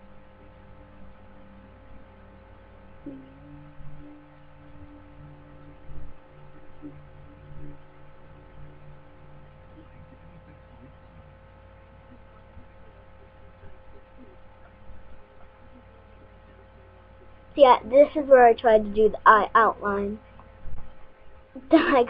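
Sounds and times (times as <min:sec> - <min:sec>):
electrical hum with constant tones: 0:00.0 - 0:22.0.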